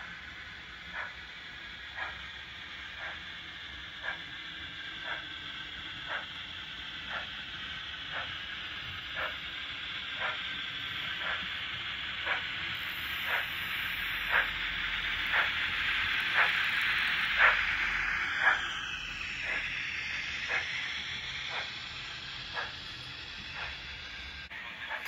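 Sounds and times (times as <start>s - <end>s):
steam hiss: 0.0s - 25.0s
steam locomotive chuffs: 0.0s - 25.0s.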